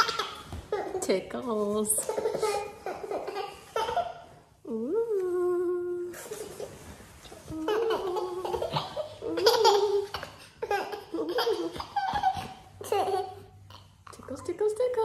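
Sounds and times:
toddler giggling: 0.0 - 1.0, 2.0 - 4.2, 7.5 - 14.0.

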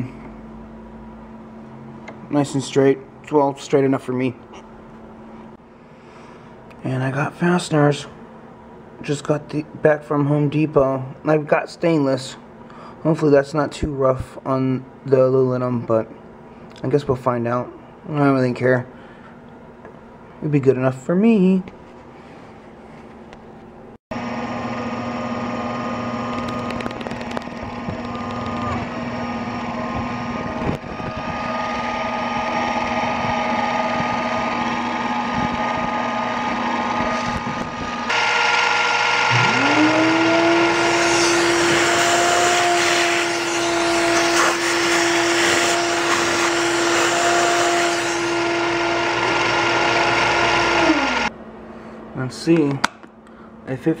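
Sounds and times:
spindle whine: 24.2 - 51.4
milling machine cutting metal: 31.0 - 51.3.

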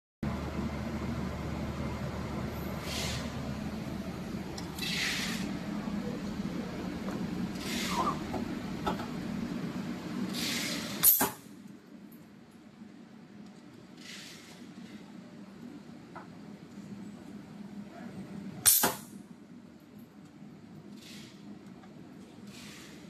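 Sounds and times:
steady hum: 0.2 - 13.4
short hissing: 2.8 - 3.5, 4.8 - 5.5, 7.6 - 8.2, 10.4 - 11.4
stud welder crack: 10.5 - 11.4, 18.7 - 19.1.

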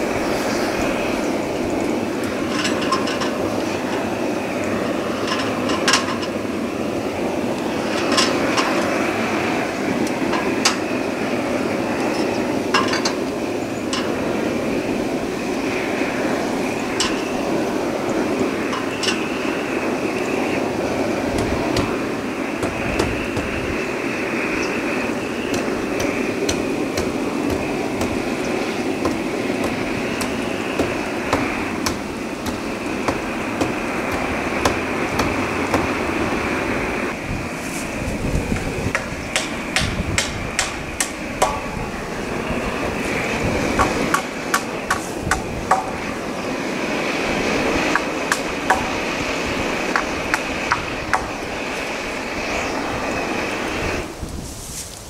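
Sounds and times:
steady rushing noise: 0.0 - 55.0
hammer blows on wooden roof: 38.6 - 41.9, 43.7 - 46.2.

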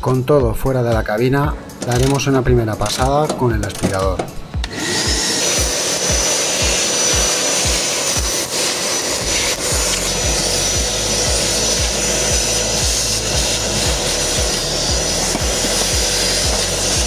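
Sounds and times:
background music with beat: 0.0 - 17.0
vacuum cleaner whining: 4.6 - 17.0.

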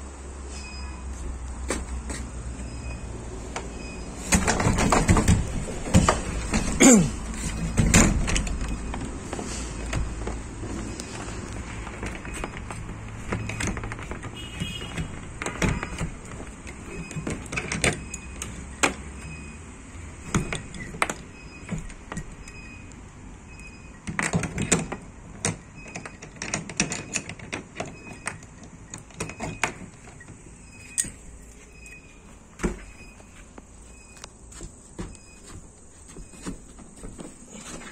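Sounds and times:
padlock and bolt latch clicking: 24.0 - 31.2.

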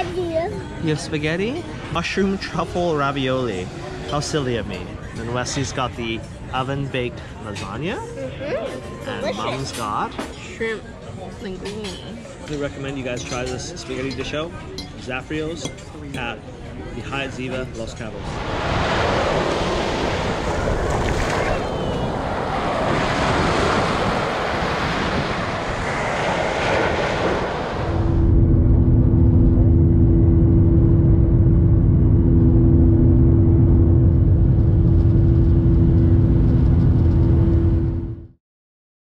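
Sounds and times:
airliner cabin engine drone: 0.0 - 10.0, 16.5 - 38.4
surf washing up beach: 17.6 - 28.2.

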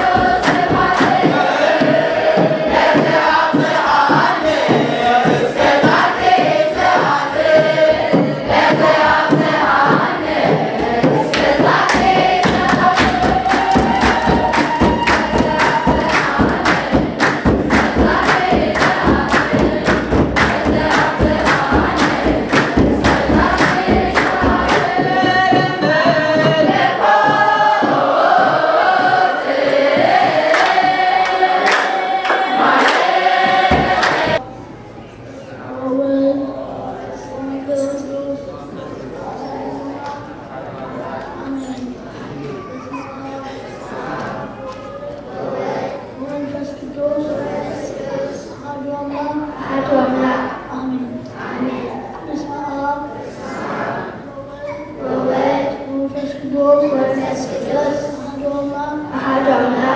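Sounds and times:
sharp rhythmic strikes: 0.0 - 34.4
congregation singing a hymn: 0.0 - 34.5, 43.5 - 59.9.

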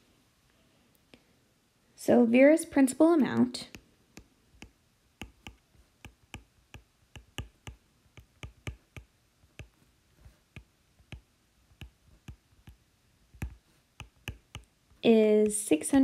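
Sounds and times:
stylus tapping on glass screen: 4.6 - 9.8, 13.4 - 14.7.

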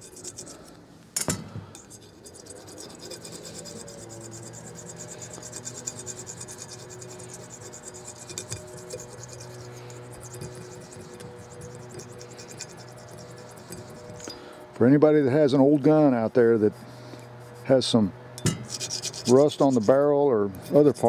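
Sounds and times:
coin scraping on metal: 0.0 - 0.7, 1.8 - 14.5, 18.5 - 20.0.

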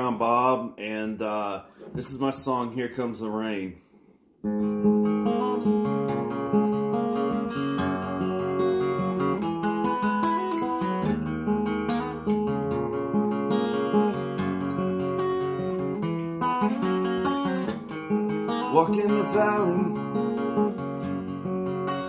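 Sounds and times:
acoustic guitar chords: 4.4 - 22.0.

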